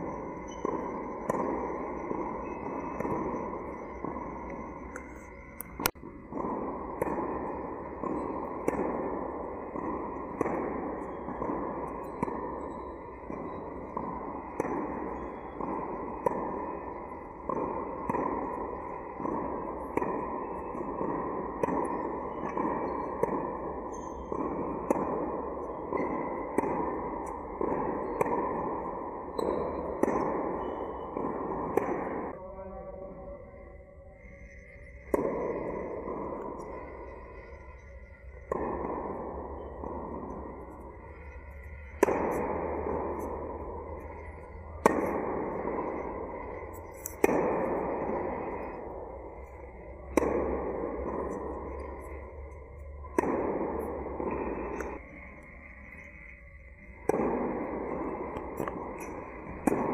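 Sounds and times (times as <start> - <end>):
background noise: 0.0 - 59.9
steady background hiss: 0.0 - 59.9
tennis ball racquet hits: 6.3 - 9.0, 9.7 - 32.3, 40.7 - 59.9.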